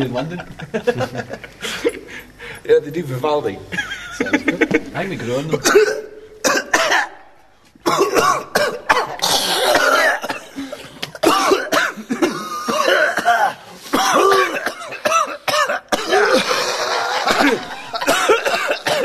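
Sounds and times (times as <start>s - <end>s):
people coughing: 4.2s - 19.0s.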